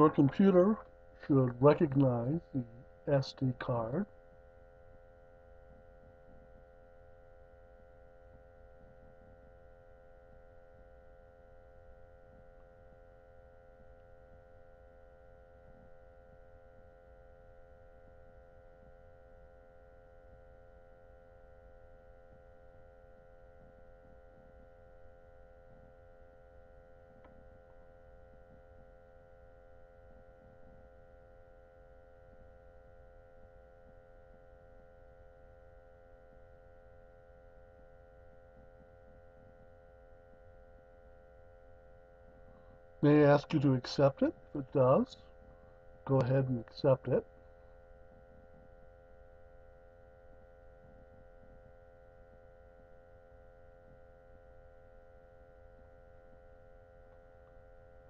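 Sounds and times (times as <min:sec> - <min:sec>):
faint electrical hum: 0:00.0 - 0:58.0.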